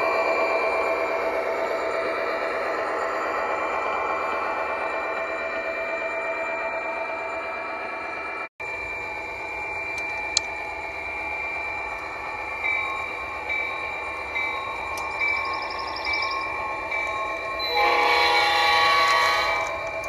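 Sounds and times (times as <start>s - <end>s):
locomotive horn blast: 17.6s - 20.0s.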